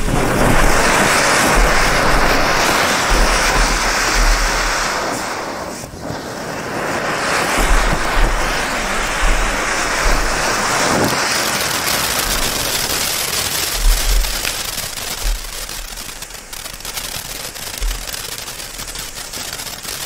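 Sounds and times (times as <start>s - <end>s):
firework fountain hissing: 0.0s - 20.0s
sharp firework pops: 0.0s - 20.0s.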